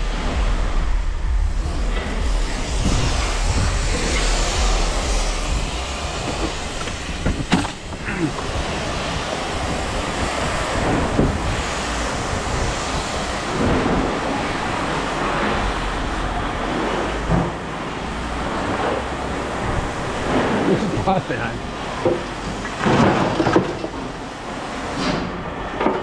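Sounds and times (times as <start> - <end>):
scrap yard rumble and clatter: 19.6 - 24.2.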